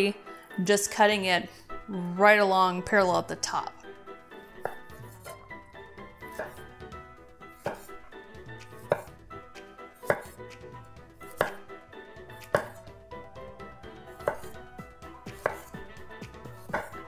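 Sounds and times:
knife slicing on wooden cutting board: 4.6s - 5.4s, 6.2s - 6.7s, 7.5s - 8.0s, 8.6s - 9.2s, 10.0s - 10.5s, 11.2s - 11.6s, 12.3s - 12.8s, 14.1s - 14.6s, 15.2s - 15.8s, 16.5s - 17.0s.

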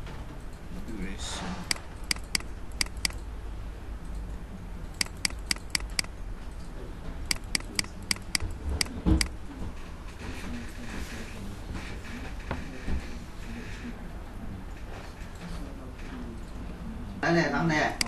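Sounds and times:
mouse button clicking: 1.7s - 3.2s, 5.0s - 6.1s, 7.3s - 9.3s.

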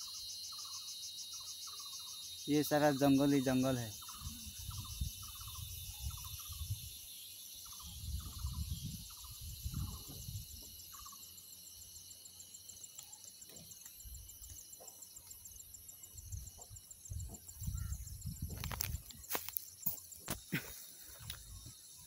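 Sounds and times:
insect pulsing trill: 0.0s - 22.0s
insects shrilling: 0.0s - 22.0s
wind buffeting microphone: 4.2s - 6.9s, 7.8s - 10.6s, 17.0s - 19.2s.

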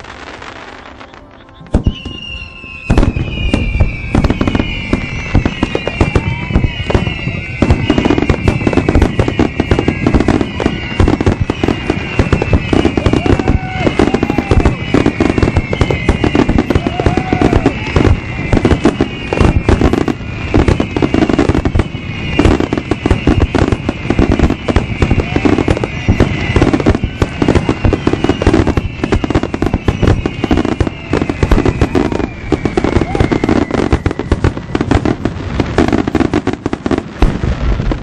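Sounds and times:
fireworks bursting and crackling: 0.0s - 38.0s.

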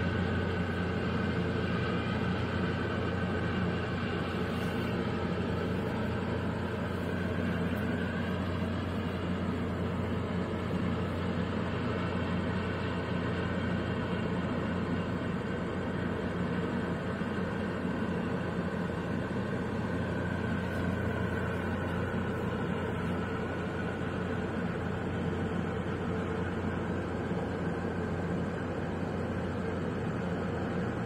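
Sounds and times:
ship engines droning: 0.0s - 31.0s.

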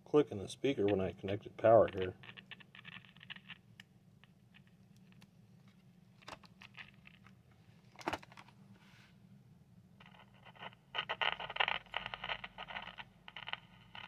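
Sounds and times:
plastic clicks and rustles: 1.8s - 8.6s.

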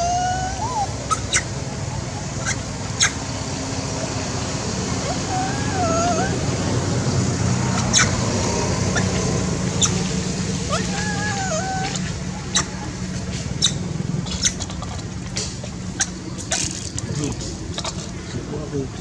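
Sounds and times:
monkey whimper call: 0.0s - 1.6s, 2.4s - 3.2s, 5.0s - 6.5s, 7.7s - 8.2s, 8.9s - 9.2s, 9.8s - 12.8s, 13.6s - 15.1s
steady background noise: 0.0s - 19.0s.

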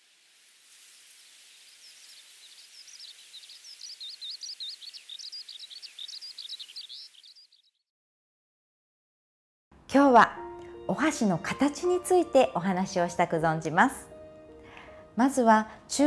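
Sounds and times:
outdoor ambient hiss: 0.0s - 7.6s
songbird twittering: 1.5s - 7.8s.

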